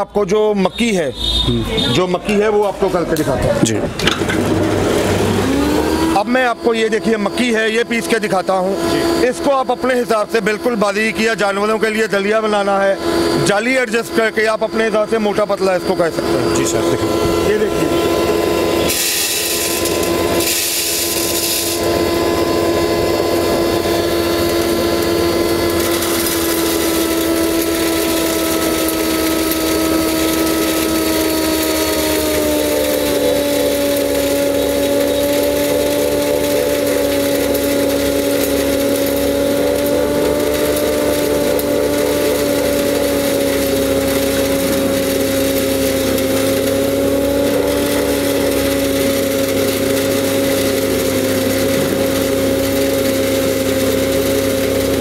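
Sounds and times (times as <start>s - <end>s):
grain grinder humming: 0.0s - 55.0s
kernels rattling into hopper: 3.6s - 5.4s, 16.6s - 55.0s.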